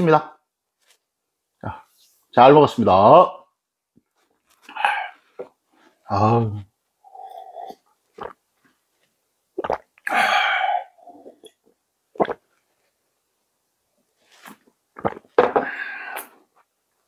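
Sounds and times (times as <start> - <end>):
person breathy exhalations: 10.1 - 11.3, 15.5 - 16.4.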